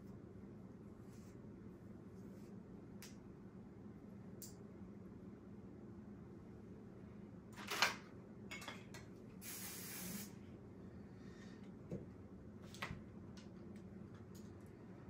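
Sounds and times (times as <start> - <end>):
aerosol spray can spraying: 9.4 - 10.3.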